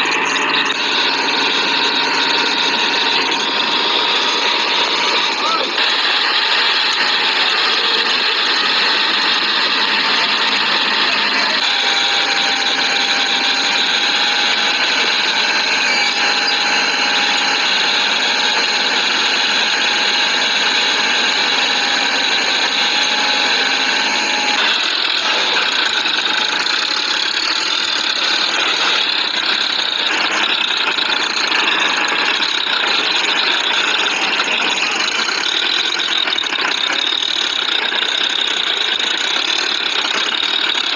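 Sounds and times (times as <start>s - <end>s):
high steady squeal: 0.0s - 40.9s
tractor diesel engine running hard: 0.0s - 40.9s
mechanical rattling: 23.6s - 40.9s.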